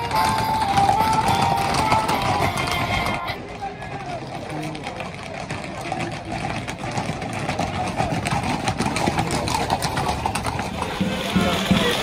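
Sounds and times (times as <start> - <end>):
crowd voices and shouts: 0.0 - 12.0
horse hooves clattering on road: 0.0 - 12.0.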